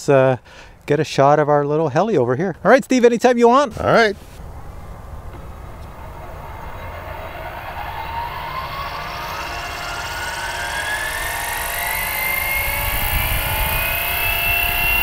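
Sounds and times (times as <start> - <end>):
rc helicopter motor whine: 4.4 - 15.0.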